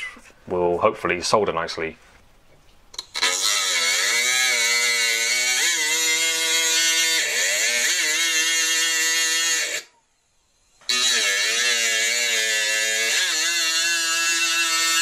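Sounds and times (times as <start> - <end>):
rotary tool grinding metal: 3.0 - 9.9, 10.6 - 15.0.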